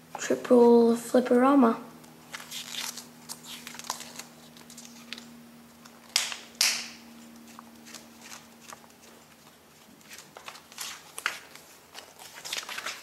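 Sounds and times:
faint steady hum: 0.0s - 13.0s
book pages rustling: 2.2s - 6.4s, 7.1s - 13.0s
page flapping swishes: 7.3s - 13.0s.

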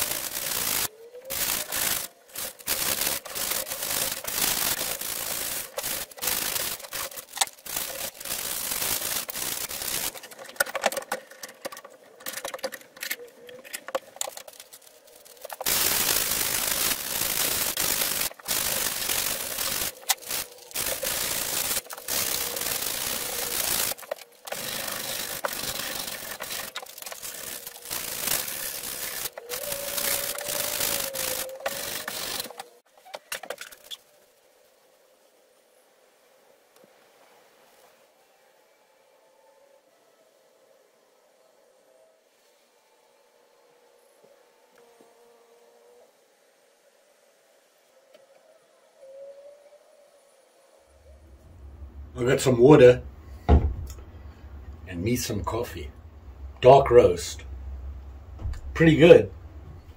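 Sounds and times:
sanding sponge scrubbing metal: 0.0s - 10.2s, 14.3s - 32.6s.

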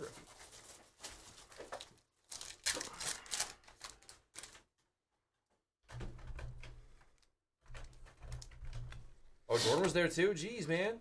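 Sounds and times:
foil wrapper tearing and crinkling: 0.3s - 4.6s.

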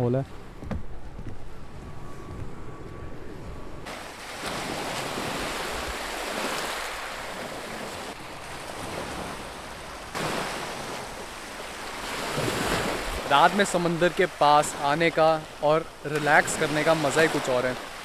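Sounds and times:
waves breaking on beach: 3.8s - 18.0s.

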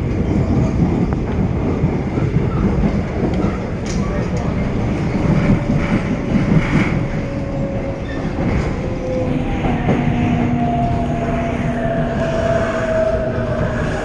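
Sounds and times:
train wheels rumbling: 0.0s - 14.0s
higher whine: 8.8s - 14.0s.

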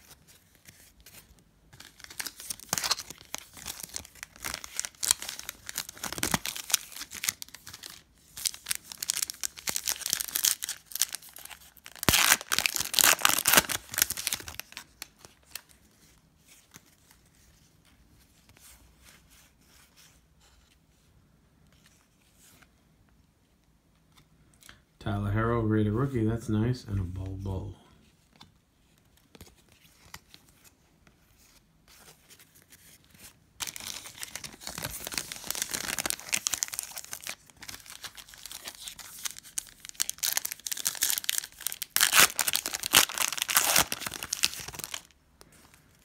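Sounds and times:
faint handling of cards: 0.0s - 25.0s, 26.6s - 46.0s
foil wrapper tearing and crinkling: 1.8s - 15.6s, 33.6s - 45.1s.

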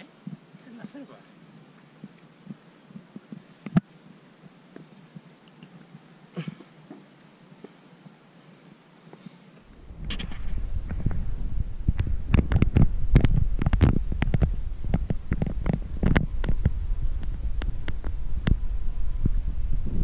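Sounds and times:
wind buffeting microphone: 9.7s - 20.0s.

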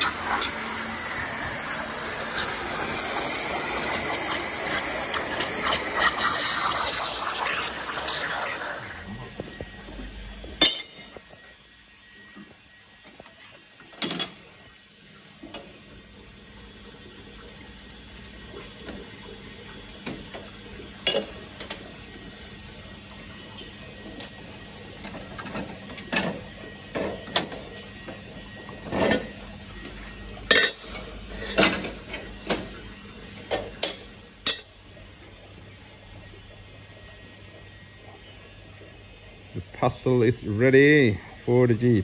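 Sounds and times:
steady low hum: 0.0s - 13.2s.

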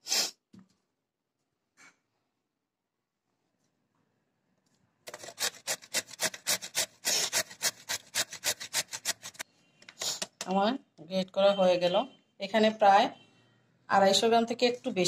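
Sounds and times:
carrot grated on metal grater: 5.1s - 9.4s.

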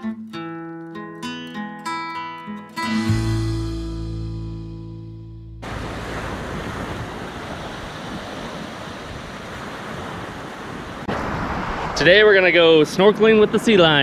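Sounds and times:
acoustic guitar music: 0.0s - 6.1s
sea noise: 5.6s - 14.0s
wind: 5.6s - 14.0s.

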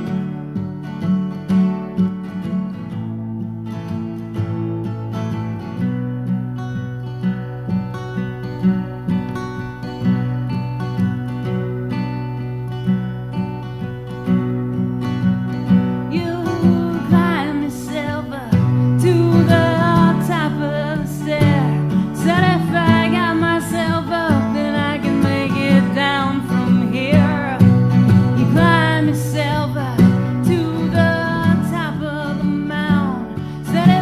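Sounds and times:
strummed acoustic guitar: 0.0s - 34.0s
person singing: 16.1s - 34.0s.

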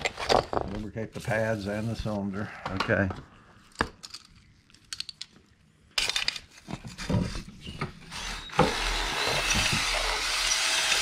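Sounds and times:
cordless drill running: 8.1s - 11.0s.

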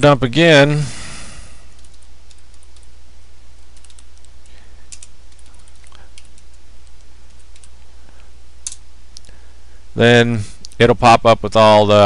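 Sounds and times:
steady low hum: 0.0s - 12.0s
keyboard keys clicking: 3.7s - 4.3s, 4.9s - 7.8s.

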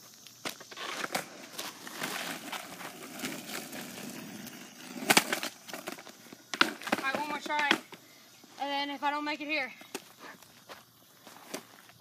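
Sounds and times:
skateboard wheels rolling on asphalt: 0.0s - 12.0s
skateboard clacking: 0.8s - 8.0s.

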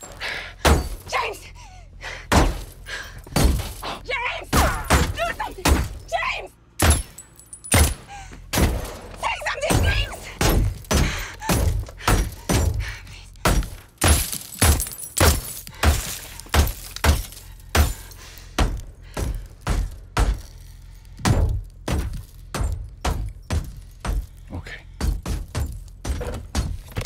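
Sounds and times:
bullets striking car windows: 9.6s - 12.8s, 13.4s - 20.6s, 21.2s - 24.4s.

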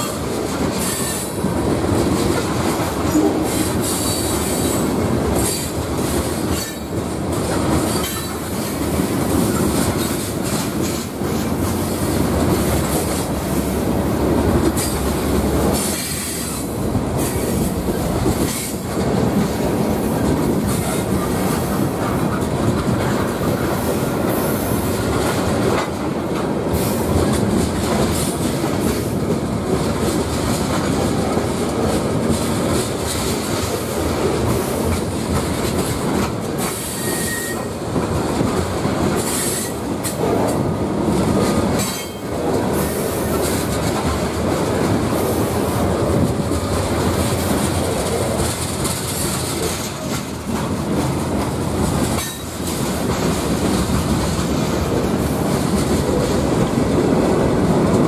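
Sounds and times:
freight train wheels on rails: 0.0s - 58.0s
high wheel squeals: 36.8s - 37.7s.

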